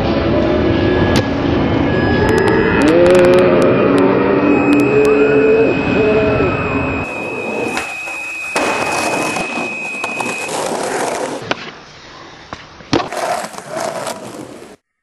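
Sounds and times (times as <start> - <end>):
skateboard rolling on hard surface: 7.1 - 11.7, 12.9 - 14.8
skateboard clacking on ground: 7.5 - 11.8, 12.5 - 14.8.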